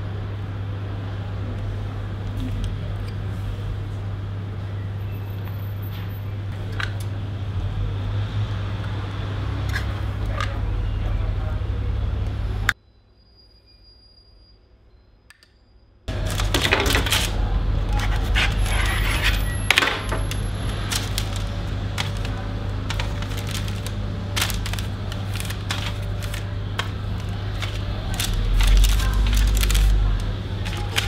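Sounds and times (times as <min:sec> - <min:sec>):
hands working pastry dough: 0:16.1 - 0:31.0.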